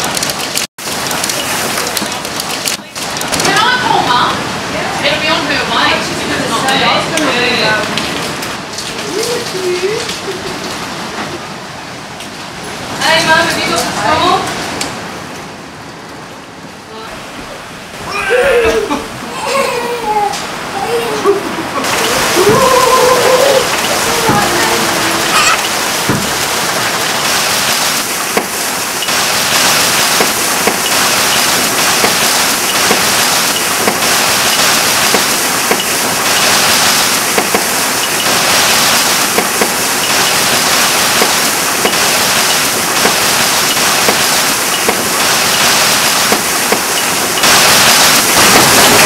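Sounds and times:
hailstones ticking: 0:00.0 - 0:04.2, 0:21.8 - 0:49.0
heavy rain hissing: 0:00.0 - 0:49.0.

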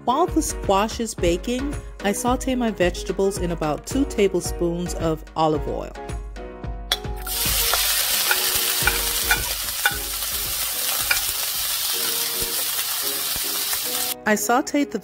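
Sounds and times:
vegetables sizzling in hot oil: 0:07.2 - 0:14.2
spatula clicking against pan: 0:07.7 - 0:10.2, 0:10.9 - 0:11.4.

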